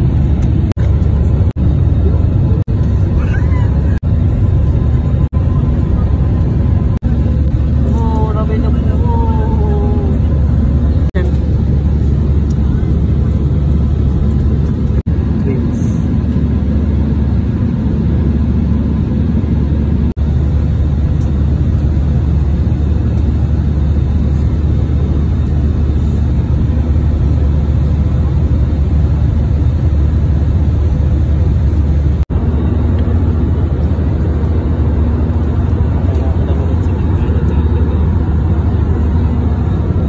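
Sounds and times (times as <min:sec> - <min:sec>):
airliner cabin drone: 0:00.0 - 0:40.0.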